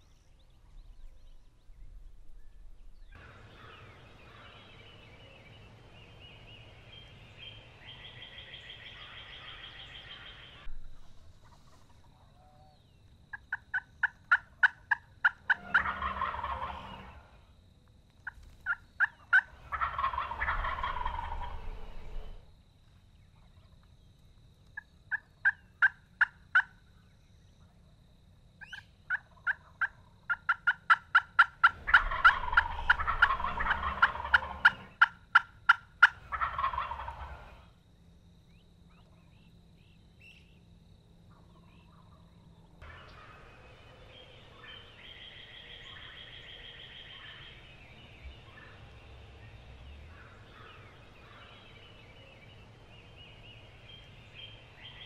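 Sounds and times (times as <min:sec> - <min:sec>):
turkey gobbling: 0:13.3 - 0:17.4, 0:18.2 - 0:22.3, 0:25.1 - 0:26.8, 0:28.6 - 0:37.7
hen turkey yelps: 0:13.5 - 0:17.1, 0:18.2 - 0:21.5, 0:28.6 - 0:37.5.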